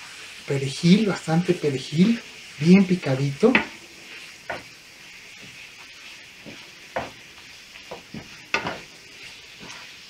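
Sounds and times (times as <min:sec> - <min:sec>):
food sizzling in a frying pan: 0:00.0 - 0:10.0
wooden spatula scraping a pan: 0:00.1 - 0:10.0.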